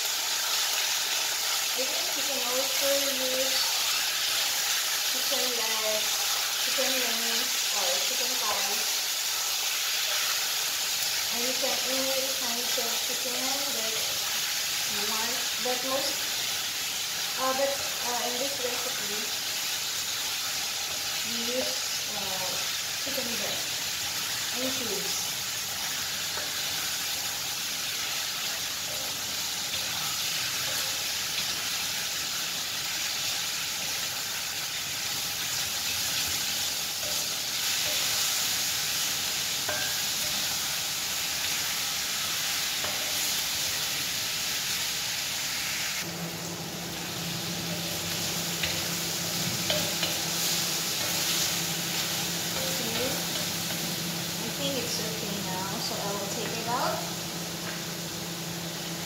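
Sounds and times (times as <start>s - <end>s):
chicken sizzling in hot oil: 0.0s - 59.0s.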